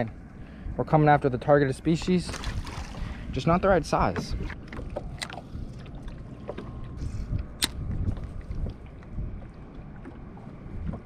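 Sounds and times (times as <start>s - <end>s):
wind rumbling on microphone: 0.0s - 11.0s
water lapping against boat hull: 1.7s - 11.0s.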